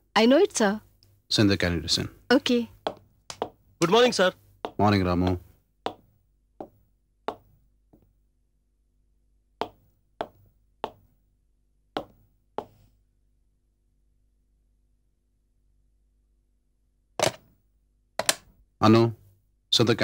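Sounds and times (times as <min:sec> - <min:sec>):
hard-soled footsteps: 0:02.8 - 0:08.1, 0:09.6 - 0:11.1, 0:12.0 - 0:12.8.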